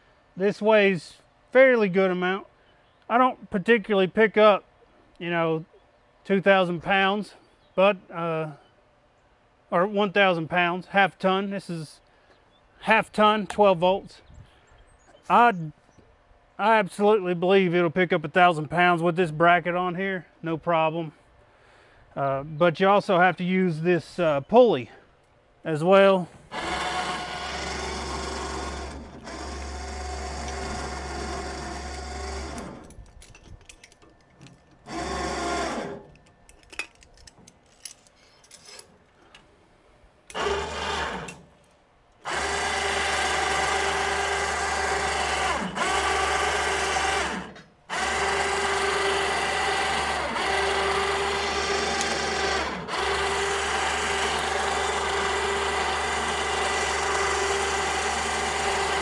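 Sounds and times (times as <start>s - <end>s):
electric winch motor whining: 26.3s - 33.0s, 34.0s - 36.4s, 40.3s - 41.5s, 42.2s - 59.0s
clicks and rattles: 32.6s - 34.9s.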